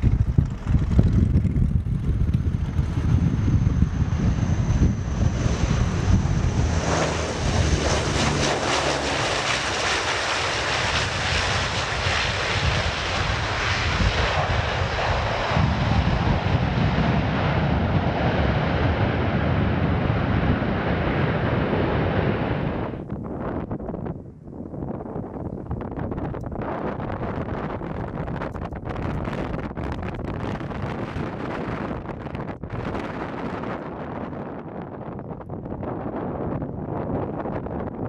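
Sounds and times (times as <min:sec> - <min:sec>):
turboprop engines running: 0:00.0 - 0:23.1.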